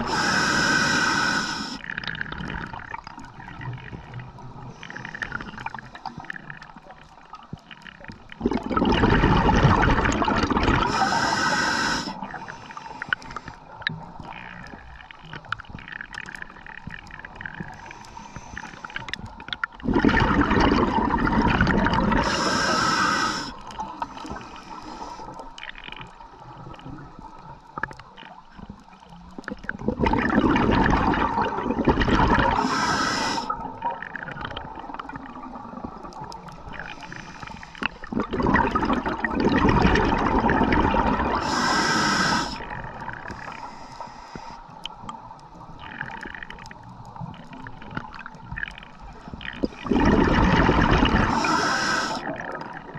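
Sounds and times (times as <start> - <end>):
regulator hiss: 0.0 - 1.8, 10.9 - 13.6, 17.8 - 19.0, 22.2 - 25.4, 32.5 - 33.5, 36.8 - 38.1, 41.4 - 42.6, 43.4 - 44.8, 51.3 - 52.3
underwater water noise: 0.0 - 52.9
bubbling regulator exhalations: 8.3 - 13.5, 19.8 - 24.5, 29.7 - 43.7, 49.4 - 52.9.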